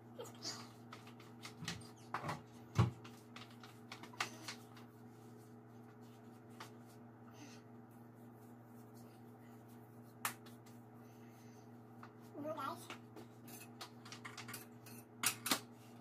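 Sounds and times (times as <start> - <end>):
steady low hum: 0.0 - 16.0
kitchen items clicking and knocking: 13.5 - 15.6.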